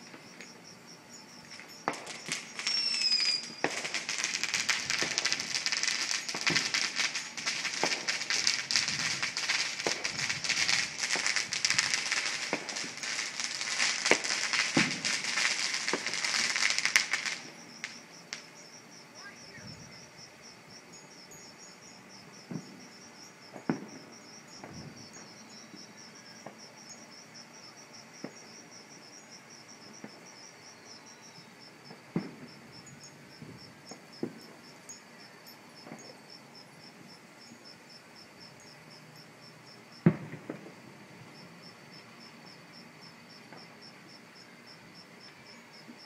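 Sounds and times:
crickets chirping: 0.0 - 46.0
distant fireworks booms and pops: 1.5 - 18.5, 22.4 - 22.9, 23.5 - 25.8, 28.2 - 28.5, 29.9 - 30.3, 31.8 - 34.7, 40.0 - 40.9.

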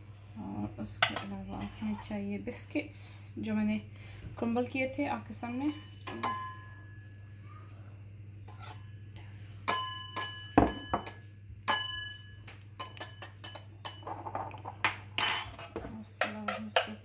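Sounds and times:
spoon clinking against glass: 5.7 - 6.8, 9.7 - 14.2.

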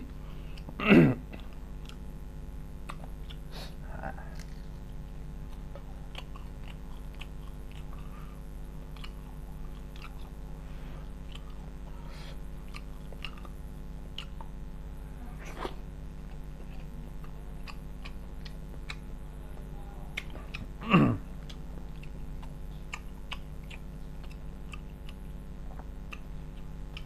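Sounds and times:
steady low hum: 0.0 - 27.0
man chewing with mouth smacks: 0.5 - 2.1, 2.7 - 14.7, 15.4 - 27.0.

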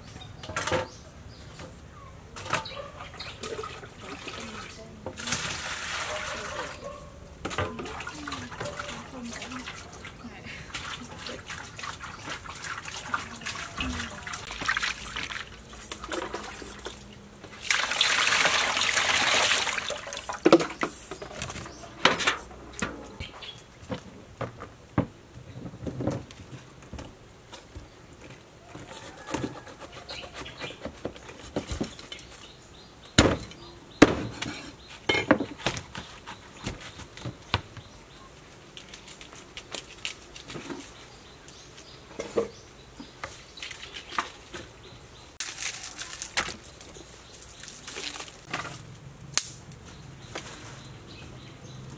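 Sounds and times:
fish splashing in bowl of water: 3.2 - 6.8, 7.5 - 20.9.

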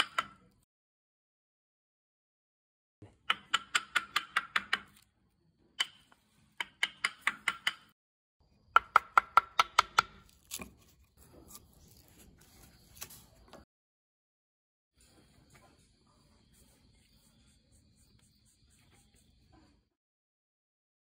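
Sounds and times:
chisel knocking into wood: 8.8 - 10.1.

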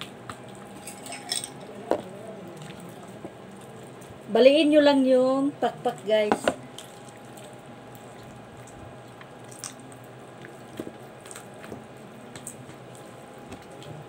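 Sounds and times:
room hum: 0.0 - 14.0
wet squishing of raw chicken: 6.7 - 11.6.

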